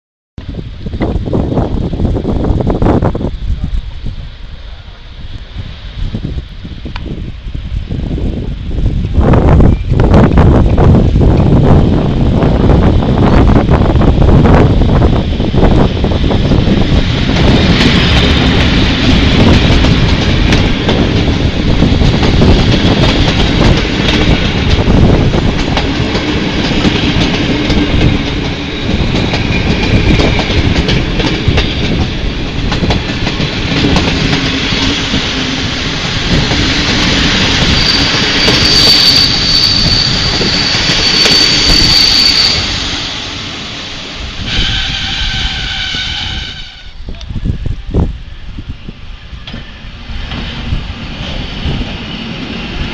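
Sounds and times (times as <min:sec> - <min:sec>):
train wheels clattering over joints: 0:16.9 - 0:43.1
steady pitched tone: 0:37.2 - 0:44.4
high brake squeal: 0:37.4 - 0:43.2.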